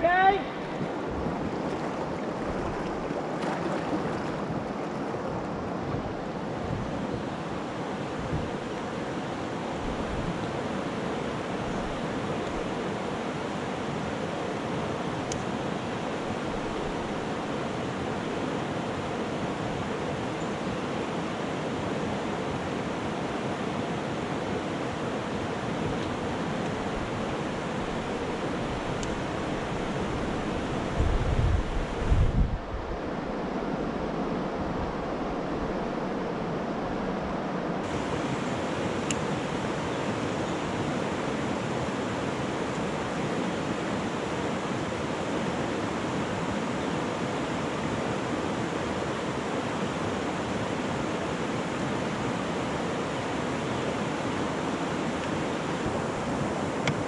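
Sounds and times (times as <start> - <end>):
water rushing over rocks: 0.0 - 31.0.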